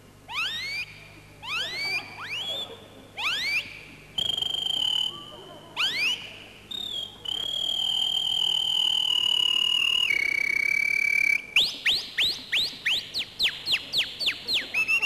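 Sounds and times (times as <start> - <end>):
man whistling bird-song imitations: 3.4 - 5.2, 5.9 - 15.0.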